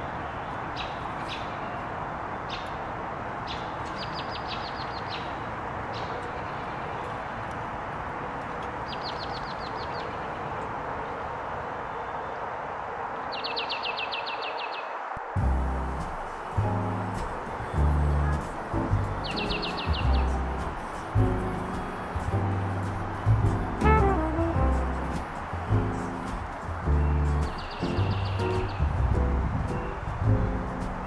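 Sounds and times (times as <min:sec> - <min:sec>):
songbirds chirping and trilling: 0:00.0 - 0:15.1, 0:15.8 - 0:23.8, 0:24.7 - 0:31.0
rain hissing: 0:15.0 - 0:29.4.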